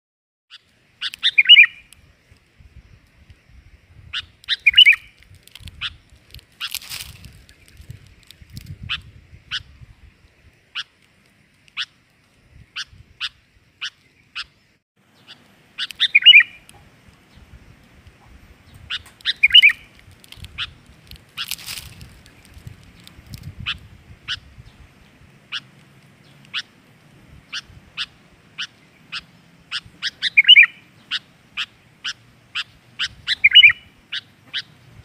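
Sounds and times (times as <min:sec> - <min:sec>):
bird call notes: 0:00.5 - 0:02.0, 0:04.2 - 0:05.2, 0:12.8 - 0:17.4, 0:18.8 - 0:20.0, 0:27.4 - 0:34.8
bird warbling song: 0:00.5 - 0:02.1, 0:02.8 - 0:35.0
rustling: 0:05.1 - 0:08.8, 0:19.0 - 0:23.6.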